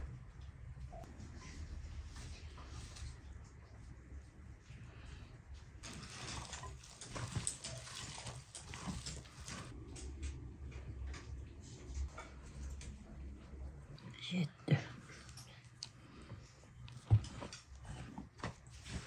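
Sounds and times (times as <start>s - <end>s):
hands kneading dough in a bowl: 1.6s - 9.8s, 14.1s - 19.0s.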